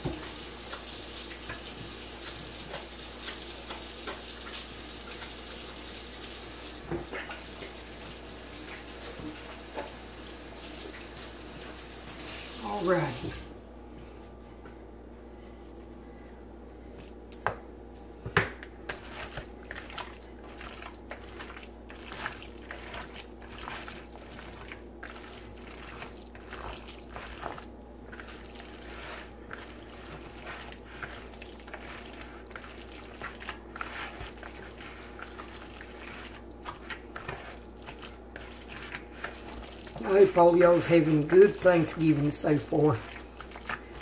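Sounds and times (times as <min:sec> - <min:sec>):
steady low hum: 0:13.4 - 0:44.0
hands squishing wet food: 0:16.2 - 0:44.0.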